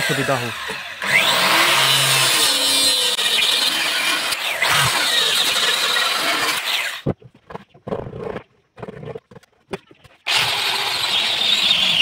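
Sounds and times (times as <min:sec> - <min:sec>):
circular saw cutting wood: 0:00.0 - 0:07.0, 0:10.2 - 0:12.0.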